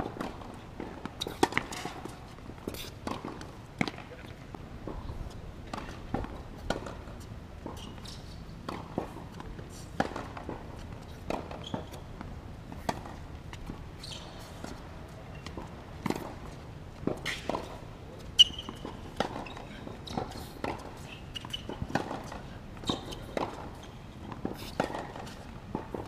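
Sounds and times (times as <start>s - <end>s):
shoe squeaks: 7.7s - 8.6s, 11.1s - 12.1s, 13.9s - 15.6s, 17.2s - 25.4s.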